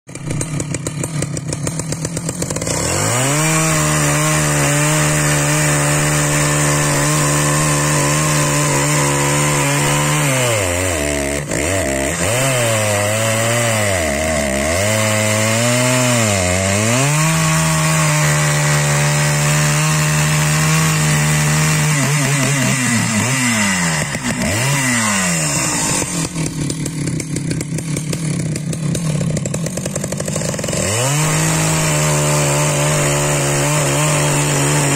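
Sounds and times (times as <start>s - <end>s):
chainsaw cutting log: 0.1s - 34.9s
chainsaw engine: 0.1s - 34.9s.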